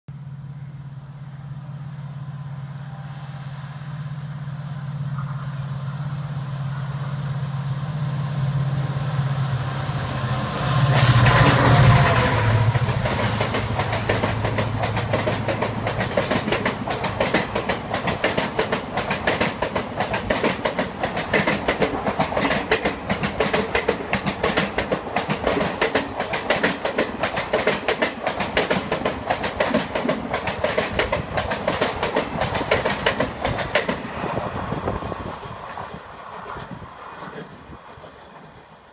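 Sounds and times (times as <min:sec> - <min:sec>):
train passing at high speed: 0:00.1 - 0:38.9
wheels clacking over rail joints: 0:10.9 - 0:34.4.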